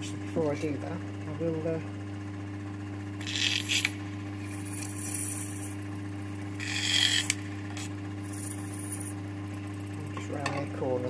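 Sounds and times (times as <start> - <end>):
lathe humming: 0.0 - 11.0
hand file rasping on brass: 6.6 - 7.3.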